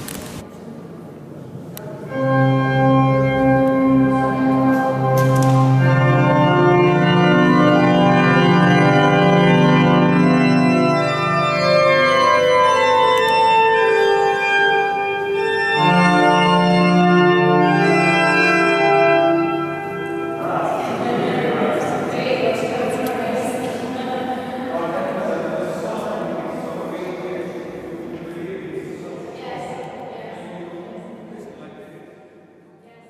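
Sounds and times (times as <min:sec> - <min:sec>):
sustained organ bass: 0:02.1 - 0:21.0
organ chords: 0:02.1 - 0:22.1.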